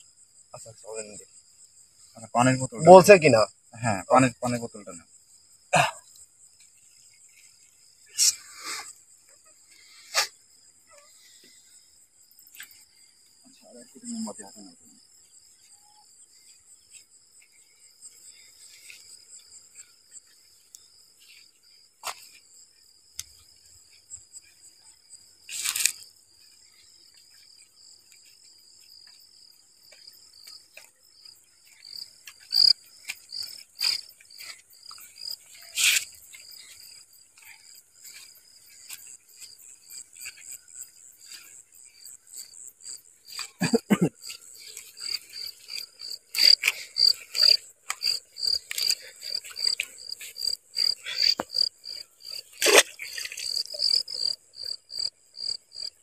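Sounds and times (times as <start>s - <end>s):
crickets and insects chirping: 0.0s - 56.0s
footsteps on dirt: 25.7s - 53.7s.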